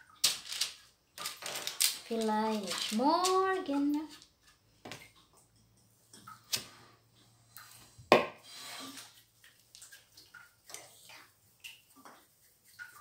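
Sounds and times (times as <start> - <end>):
parchment rustle: 0.0 - 4.6.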